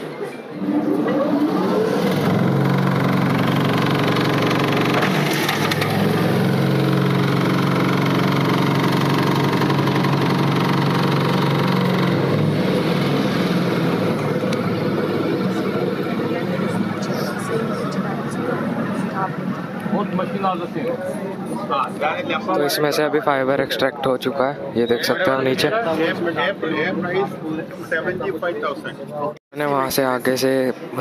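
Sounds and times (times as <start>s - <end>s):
fibre extraction machine humming: 0.6s - 20.4s
machine rattling: 0.8s - 15.6s.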